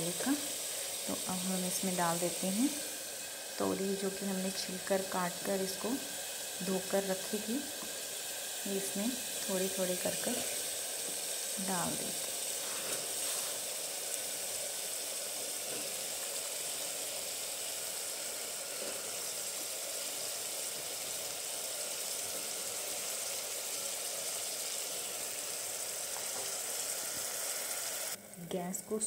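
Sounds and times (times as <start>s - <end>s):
paste sizzling in oil: 0.0s - 28.4s.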